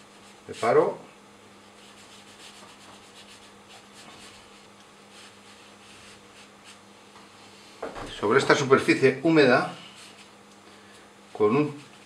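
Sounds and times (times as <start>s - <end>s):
brush scratching on paper: 0.0s - 0.7s, 1.6s - 6.8s
low steady hum: 0.0s - 12.0s.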